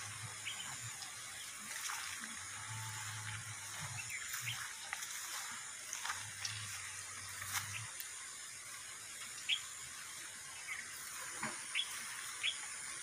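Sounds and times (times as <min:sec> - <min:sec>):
low hum: 0:00.0 - 0:12.9
steady outdoor hiss: 0:00.0 - 0:13.0
faint bird chirps: 0:10.5 - 0:12.7.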